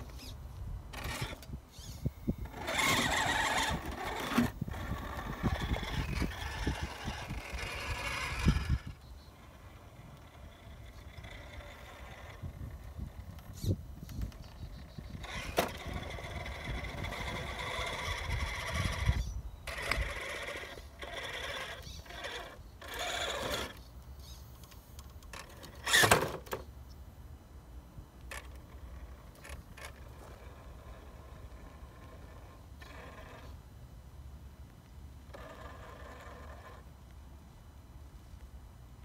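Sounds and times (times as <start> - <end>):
electric motor whining: 0.0 - 14.4, 15.0 - 23.8, 25.6 - 26.3.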